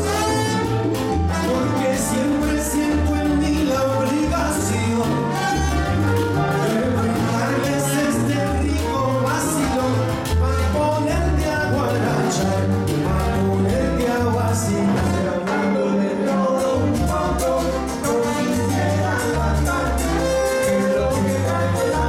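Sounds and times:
salsa band playing: 0.0 - 22.0
upright bass: 0.0 - 22.0
male lead singer: 1.3 - 22.0.

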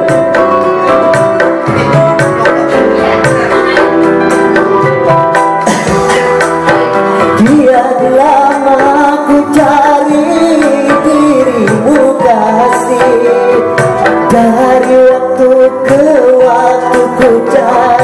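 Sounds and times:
hand drums: 0.0 - 18.0
person singing: 5.5 - 18.0.

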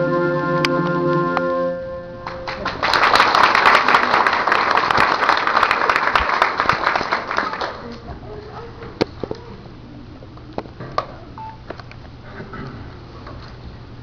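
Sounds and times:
organ-like keyboard chord: 0.0 - 2.3
audience applause: 2.2 - 8.0.

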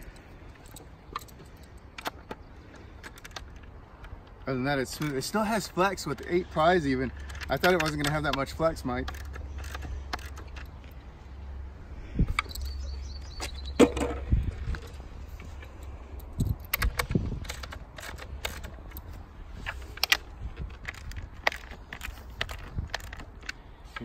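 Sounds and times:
steady low rumble: 5.7 - 23.8.

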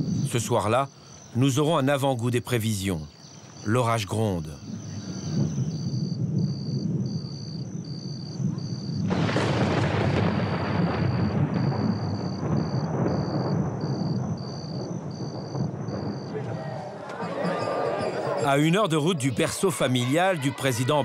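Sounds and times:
crickets chirping: 0.0 - 21.0
thunder rumbling: 4.6 - 20.8.

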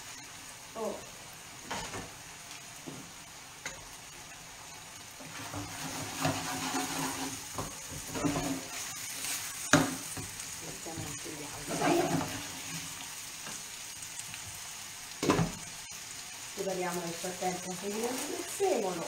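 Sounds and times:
food sizzling in a frying pan: 0.0 - 19.0
wooden spoon scraping a pan: 5.2 - 13.6.

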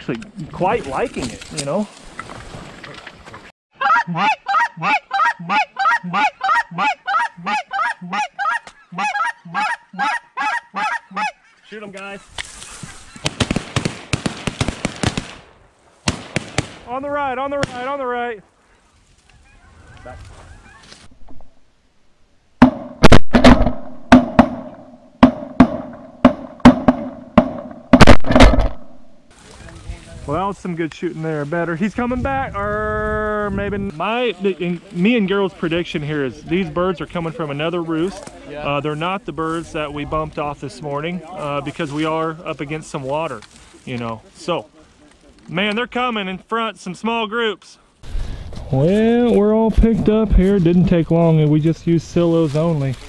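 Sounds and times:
goose honking: 3.8 - 11.6
shotgun shots: 13.2 - 16.9, 22.6 - 29.0.

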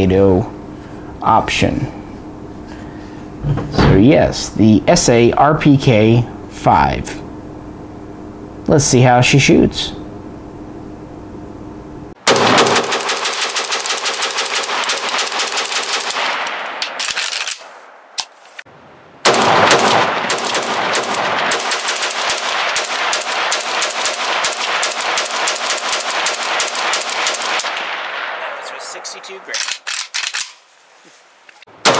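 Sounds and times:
rifle firing rapid shots: 12.2 - 17.6, 19.2 - 28.5.

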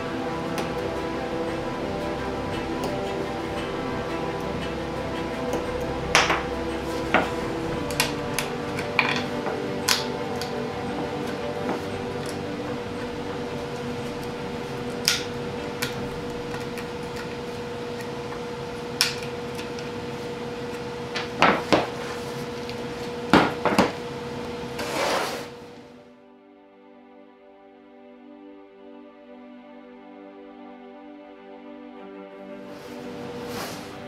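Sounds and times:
soft music: 0.0 - 24.6, 25.8 - 34.0
steady hum: 0.0 - 24.9.

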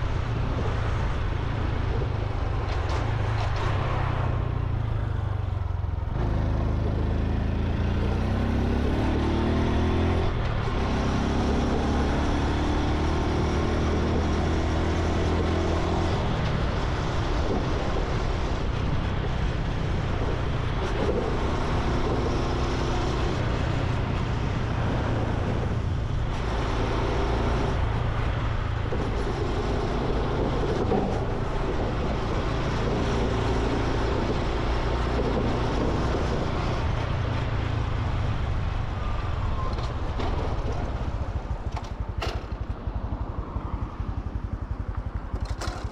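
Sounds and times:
motorcycle engine running: 40.7 - 45.9.

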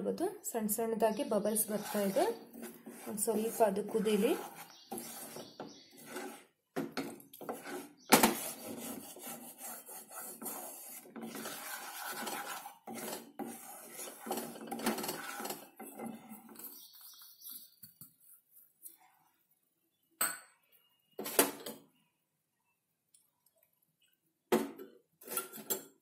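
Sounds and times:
spatula scraping pan: 1.2 - 17.4.

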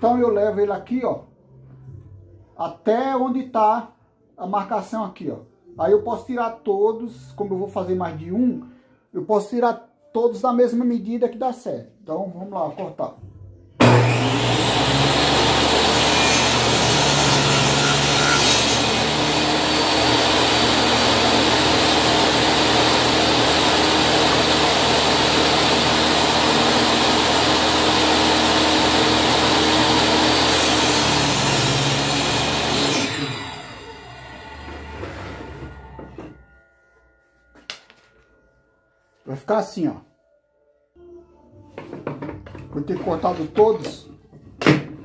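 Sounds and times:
saw crosscutting wood: 13.8 - 36.4
table saw running: 13.8 - 36.4.

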